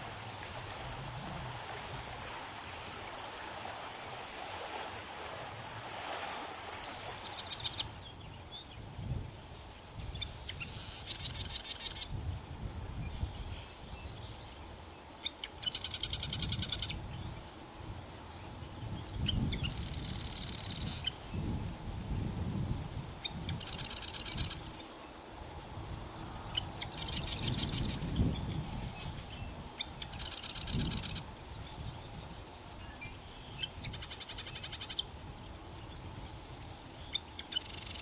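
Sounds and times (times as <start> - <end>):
wren singing buzzy trills: 5.9 - 8.8, 13.0 - 21.6, 22.8 - 25.2, 26.2 - 38.0.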